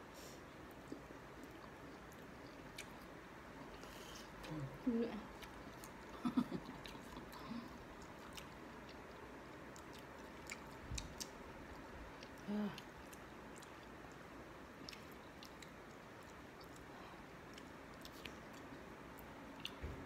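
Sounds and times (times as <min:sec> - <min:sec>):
chewing raw mango: 0:00.8 - 0:16.9, 0:17.5 - 0:19.9
person humming: 0:04.4 - 0:05.3, 0:12.4 - 0:12.9.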